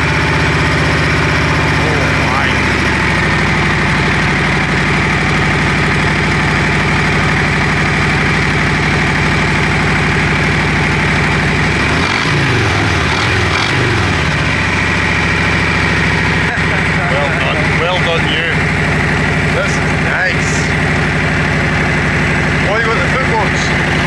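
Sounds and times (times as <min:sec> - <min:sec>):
motorcycle engine idling and revving: 0:00.0 - 0:24.0.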